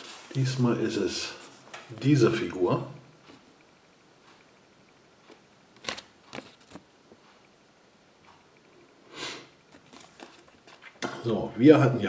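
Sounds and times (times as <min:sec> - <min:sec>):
paper leaflet crinkling: 0:05.8 - 0:06.8, 0:09.8 - 0:11.0
paper rustle: 0:05.8 - 0:06.8, 0:09.7 - 0:11.0.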